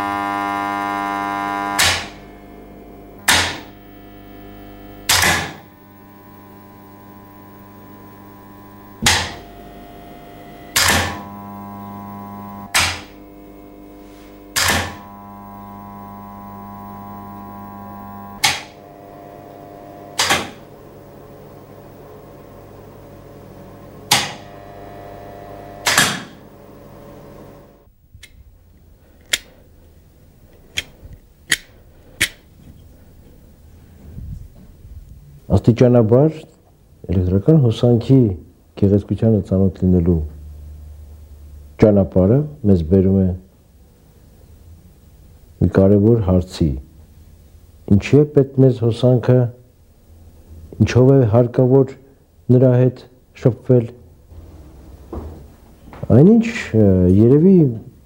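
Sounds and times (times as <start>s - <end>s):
electrical hum: 0.0s - 58.0s
loud sharp clicks: 1.8s - 2.2s, 3.2s - 3.7s, 5.1s - 5.7s, 9.0s - 9.4s, 10.7s - 11.2s, 12.6s - 13.2s, 14.5s - 15.0s, 18.4s - 18.8s, 20.1s - 20.6s, 24.1s - 24.5s, 25.8s - 26.4s, 31.5s - 32.4s.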